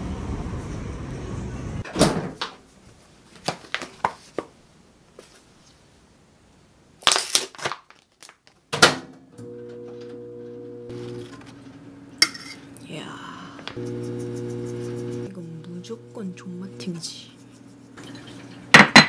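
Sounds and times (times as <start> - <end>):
plastic pouch crinkling and tearing: 7.0 - 8.6
steady hum: 10.1 - 18.8.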